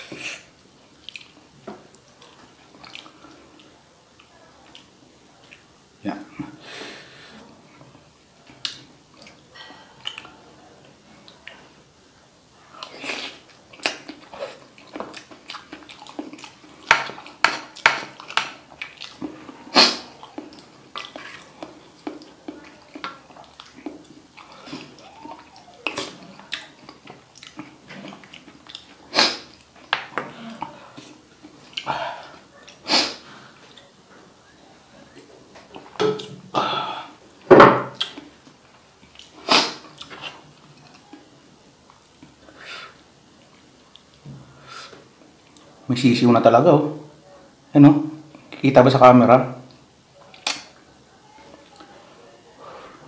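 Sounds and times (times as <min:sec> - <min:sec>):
wet chewing and mouth smacks: 0:01.0 - 0:05.7, 0:10.0 - 0:10.4, 0:12.8 - 0:32.8, 0:37.3 - 0:42.4, 0:50.2 - 0:50.8
puffs of breath: 0:06.6 - 0:07.5, 0:42.5 - 0:43.0, 0:44.5 - 0:45.0, 0:52.6 - 0:53.0.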